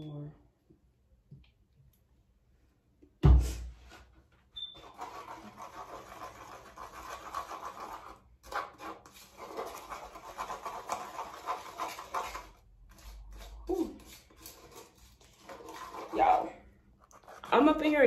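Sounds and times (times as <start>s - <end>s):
spoon scraping mixing bowl: 4.6s - 18.0s.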